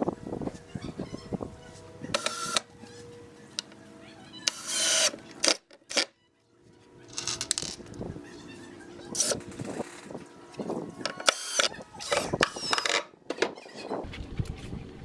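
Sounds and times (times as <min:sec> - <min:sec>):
cordless drill motor whining: 0:02.1 - 0:02.7, 0:04.4 - 0:05.2, 0:11.0 - 0:13.0.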